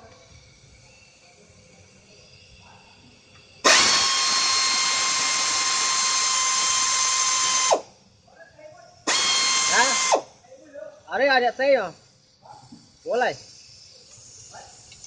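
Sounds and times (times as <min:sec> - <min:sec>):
power tool whining: 0:03.0 - 0:08.0, 0:09.0 - 0:10.4.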